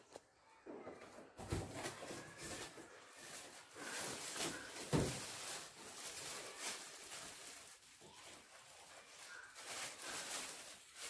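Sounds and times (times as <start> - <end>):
plastic wrapping rustling: 1.2 - 11.0.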